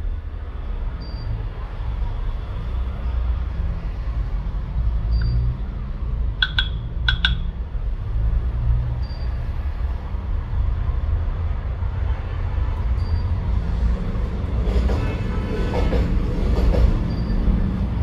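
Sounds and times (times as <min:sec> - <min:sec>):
short high beeps: 0:06.4 - 0:07.5.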